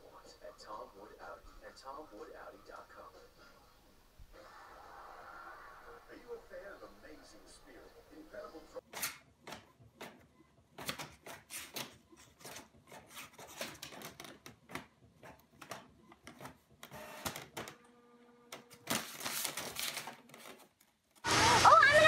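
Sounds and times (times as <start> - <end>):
printer clicks and clacks: 9.0 - 17.8.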